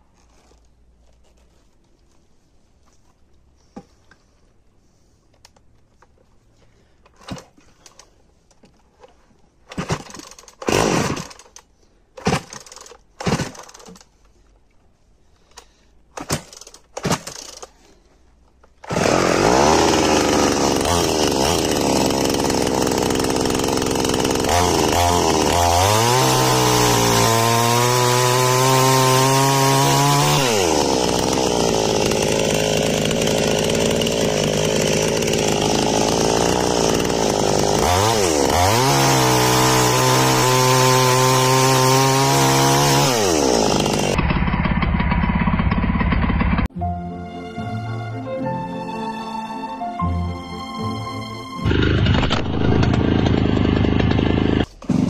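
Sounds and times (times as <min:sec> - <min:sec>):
chainsaw cutting wood: 0:09.7 - 0:14.2, 0:15.5 - 0:17.8, 0:18.8 - 0:46.7, 0:51.6 - 0:55.0.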